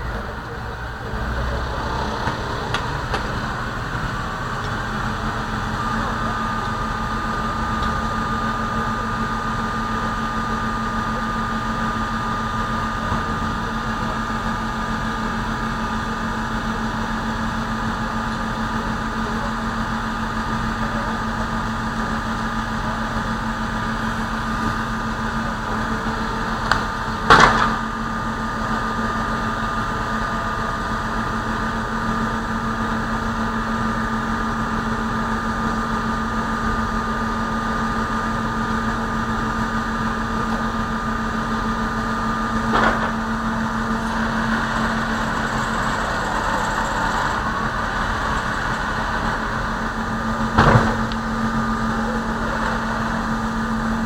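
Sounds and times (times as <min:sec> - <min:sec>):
sharp bang: 0:50.6 - 0:51.2.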